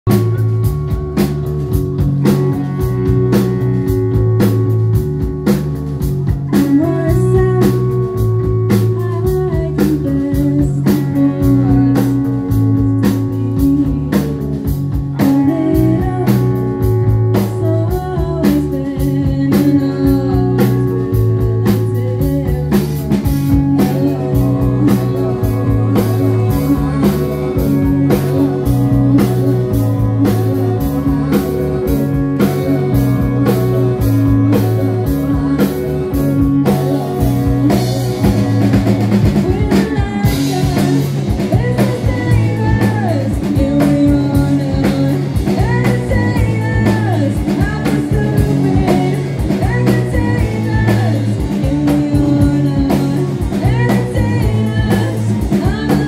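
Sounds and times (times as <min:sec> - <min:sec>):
electric guitars: 0:00.0 - 0:56.0
repeating bass line: 0:00.0 - 0:56.0
steady drum beat: 0:00.0 - 0:56.0.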